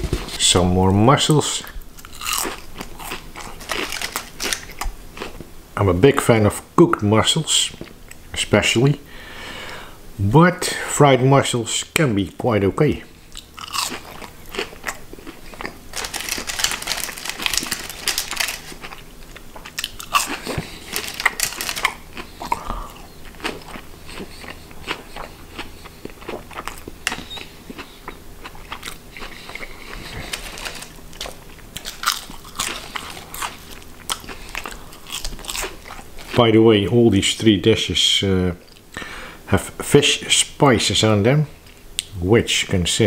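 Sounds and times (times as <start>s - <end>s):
crunching fried food: 1.2s - 5.5s, 13.3s - 37.0s
quiet chewing: 13.2s - 36.5s.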